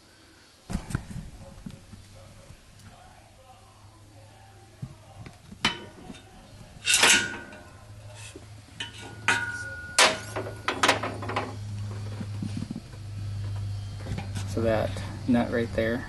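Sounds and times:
steady low hum: 0.0 - 16.0
metal tools clanking: 5.6 - 12.1.

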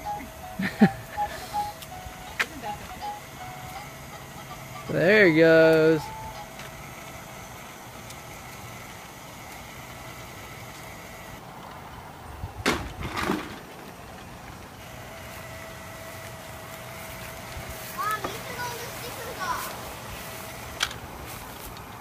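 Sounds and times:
toy train motor whirring: 0.0 - 11.4, 14.1 - 22.0.

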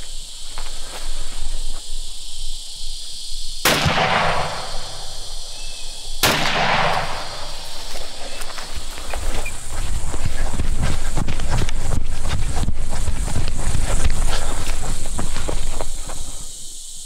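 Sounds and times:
rifle shots with echo: 3.6 - 5.2, 6.2 - 7.6.

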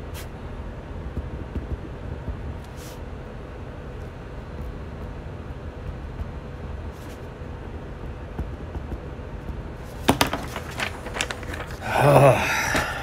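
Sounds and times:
low room rumble: 0.0 - 13.0
paper rustling and clicking: 9.8 - 13.0.

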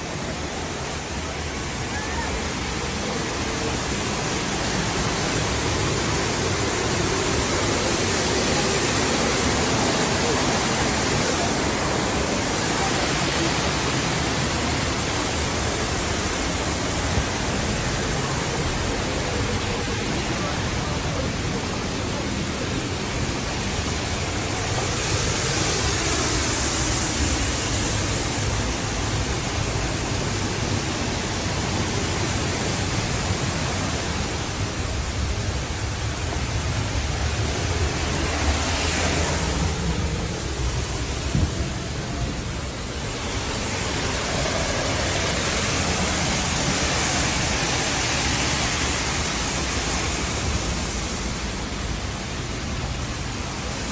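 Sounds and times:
waterfall rushing: 0.0 - 53.9.

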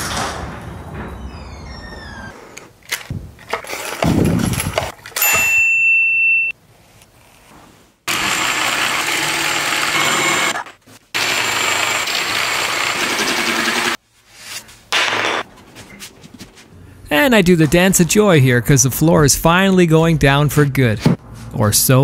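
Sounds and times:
workshop knocks and thumps: 0.0 - 2.3, 3.1 - 5.5
power tool running: 8.1 - 14.0.

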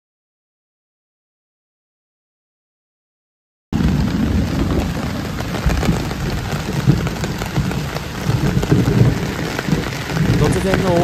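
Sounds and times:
heavy rain pouring: 3.8 - 11.0.

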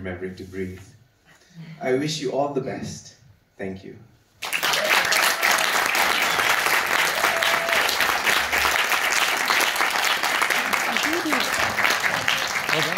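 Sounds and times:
audience applauding: 4.4 - 12.9.

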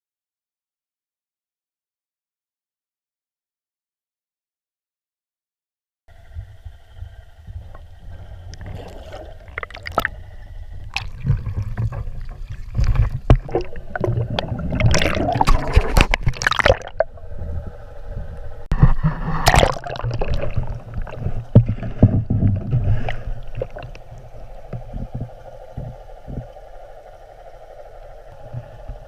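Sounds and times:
churning water rushes: 6.1 - 29.0
low rumble: 6.1 - 29.0
water gurgling underwater: 7.4 - 26.8.

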